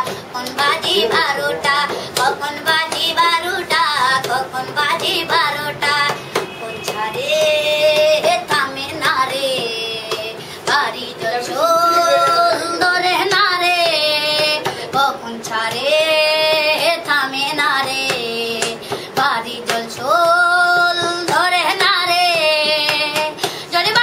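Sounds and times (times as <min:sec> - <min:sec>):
boy singing: 0:00.0 - 0:24.0
breaths: 0:01.9 - 0:02.2, 0:10.4 - 0:10.7, 0:14.7 - 0:14.9, 0:18.8 - 0:19.2, 0:23.4 - 0:23.8.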